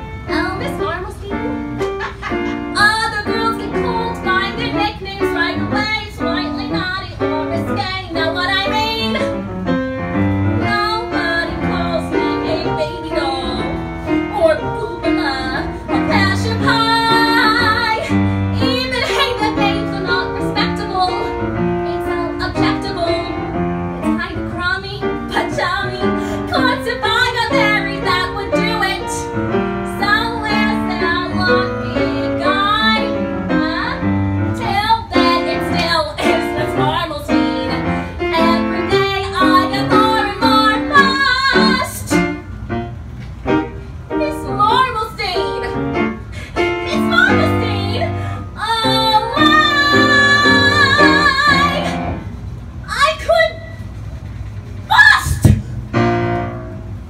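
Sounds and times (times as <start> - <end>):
piano: 0.0 - 57.0
woman singing show tune: 0.3 - 1.6, 2.7 - 9.3, 10.6 - 13.7, 29.9 - 42.1, 44.1 - 45.8, 46.6 - 52.0.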